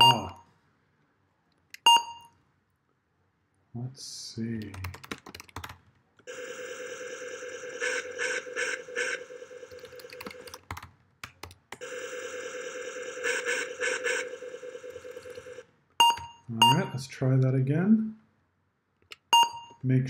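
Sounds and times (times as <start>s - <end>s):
keyboard keys clicking: 4.6s - 5.8s
floppy disk drive whirring: 6.4s - 10.4s.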